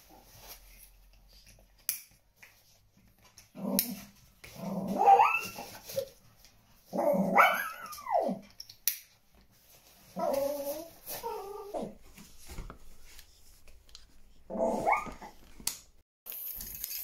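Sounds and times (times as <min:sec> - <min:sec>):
dog whining: 0:04.8 - 0:06.1, 0:06.9 - 0:08.5, 0:10.2 - 0:12.0, 0:14.5 - 0:15.4.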